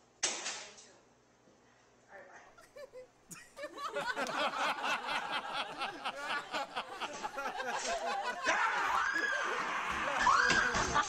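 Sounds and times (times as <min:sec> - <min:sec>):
people laughing and chattering: 0:02.6 - 0:11.0.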